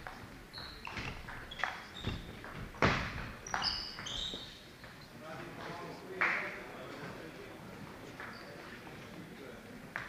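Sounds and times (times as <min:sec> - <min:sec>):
shoes squeaking on wooden floor: 0:00.0 - 0:05.1
echoing thuds and taps: 0:00.9 - 0:03.7.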